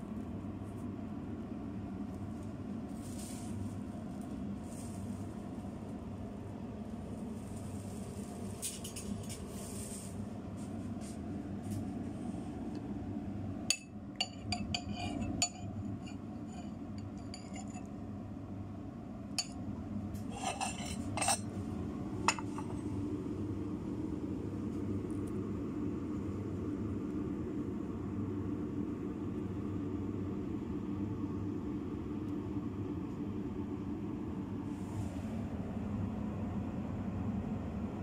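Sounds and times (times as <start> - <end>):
steady low hum: 0.0 - 38.0
metal spoon clinking on ceramic bowl: 13.7 - 16.2, 20.4 - 21.5.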